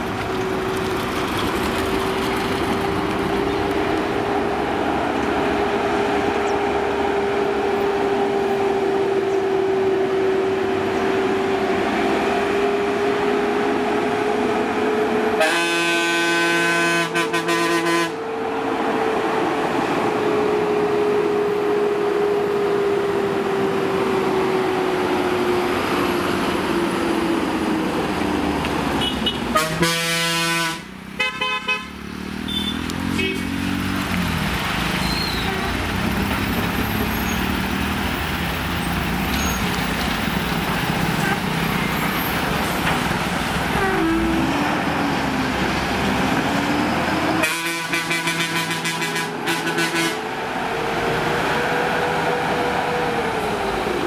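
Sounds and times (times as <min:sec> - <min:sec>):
diesel truck engine drone: 0:00.0 - 0:54.0
vehicle horn blast: 0:15.4 - 0:18.2, 0:29.0 - 0:31.9, 0:32.5 - 0:33.5, 0:47.4 - 0:50.2.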